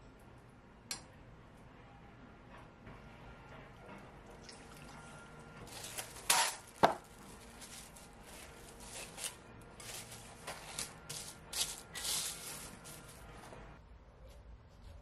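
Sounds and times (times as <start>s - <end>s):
plastic wrap crinkling: 5.6s - 13.2s.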